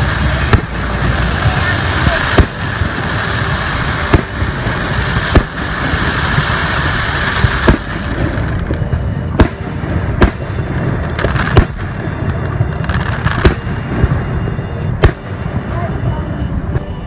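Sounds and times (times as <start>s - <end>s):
steady rushing background noise: 0.0s - 13.4s
fireworks bursting with sharp bangs: 0.0s - 17.0s.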